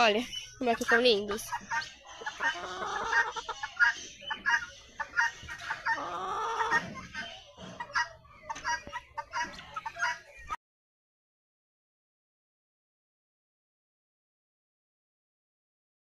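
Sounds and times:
chickens clucking: 0.0 - 10.6.

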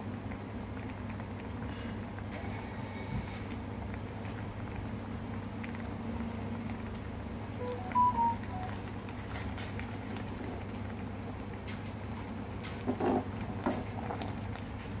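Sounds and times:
curry bubbling in a pot: 0.0 - 7.5, 9.6 - 15.0
short high tones: 7.6 - 8.8.

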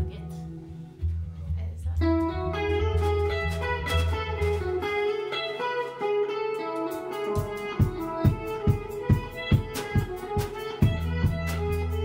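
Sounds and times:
low bass guitar note: 0.0 - 5.1, 10.6 - 12.0
electric guitar single notes: 0.0 - 12.0
drum thump: 7.4 - 11.8.

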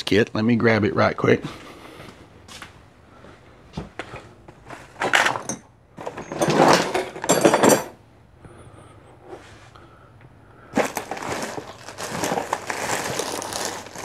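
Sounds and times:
plastic and metal items clattering: 4.6 - 7.9, 10.7 - 14.0.

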